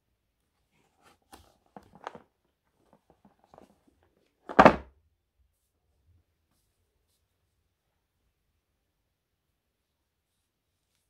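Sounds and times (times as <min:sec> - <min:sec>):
box thumping onto bed: 0:04.5 - 0:04.9.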